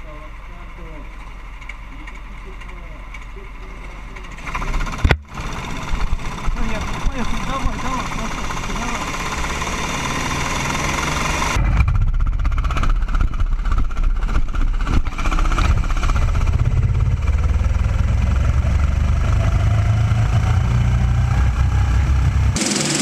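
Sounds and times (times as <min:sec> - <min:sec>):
kart engine running hard: 0:03.5 - 0:23.0
high hiss: 0:22.6 - 0:23.0.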